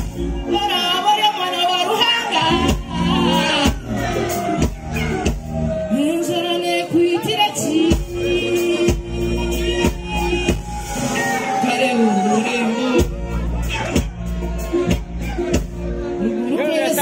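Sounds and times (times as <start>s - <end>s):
band with guitars and keyboard: 0.0s - 17.0s
woman singing: 0.4s - 4.3s, 5.8s - 10.7s.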